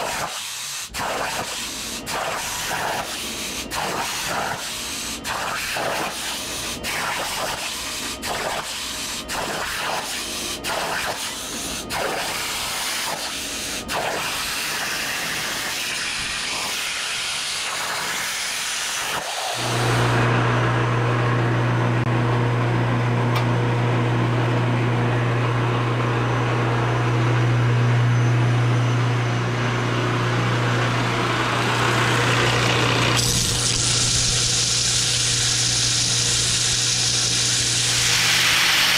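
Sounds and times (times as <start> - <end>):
plasma cutter hissing: 0.0 - 20.1, 33.1 - 38.9
belt sander motor hum: 19.5 - 38.9
metal grinding on sanding belt: 32.4 - 38.9.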